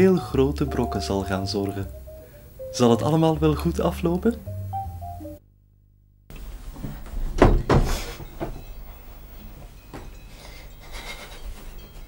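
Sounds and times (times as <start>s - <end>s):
knocks and thumps: 6.7s - 8.8s.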